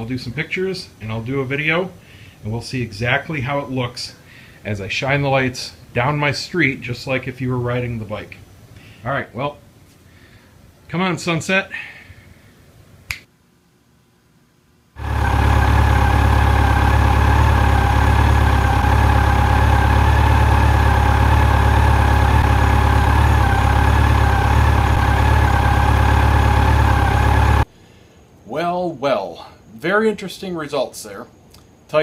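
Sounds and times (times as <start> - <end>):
sharp click: 13.1 - 13.3
motorcycle engine idling: 15.0 - 27.6.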